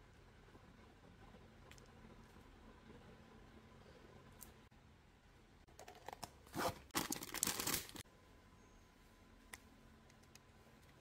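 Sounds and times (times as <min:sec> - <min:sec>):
plastic packaging crinkling: 0:07.0 - 0:08.0.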